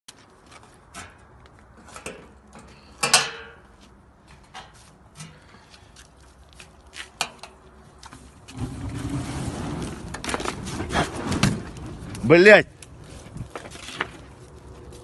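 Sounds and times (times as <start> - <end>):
fire flaring up with whoosh: 8.5 - 13.8.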